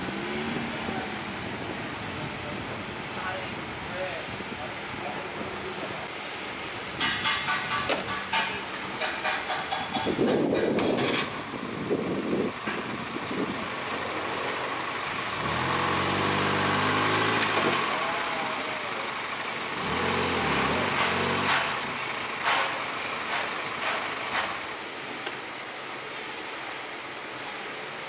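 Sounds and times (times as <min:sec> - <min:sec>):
truck engine running: 0:00.0 - 0:27.8
knocks: 0:07.0 - 0:11.2.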